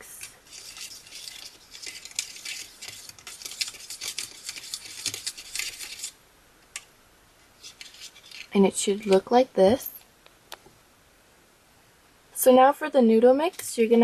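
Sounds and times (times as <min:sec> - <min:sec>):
plastic spoon scraping plastic tray: 0:00.0 - 0:06.1.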